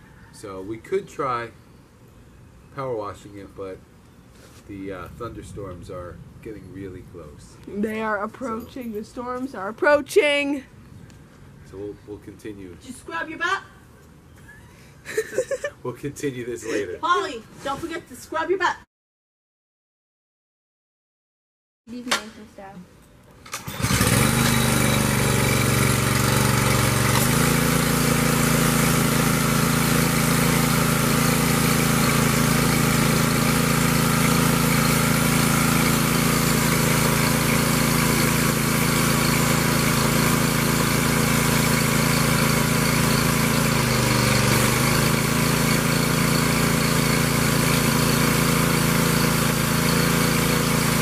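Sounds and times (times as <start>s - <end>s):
pressure washer engine running: 23.6s - 51.0s.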